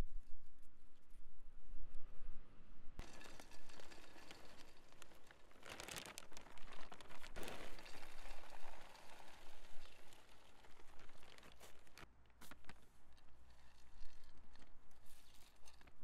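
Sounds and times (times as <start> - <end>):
clay granules pattering into pot: 3.0 - 16.0
plastic bag crinkling: 3.0 - 16.0.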